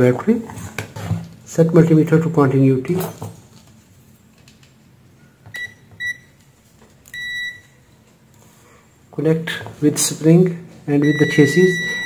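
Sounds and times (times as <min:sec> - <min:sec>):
multimeter continuity beeps: 0:05.5 - 0:06.3, 0:07.1 - 0:07.8, 0:11.0 - 0:12.0.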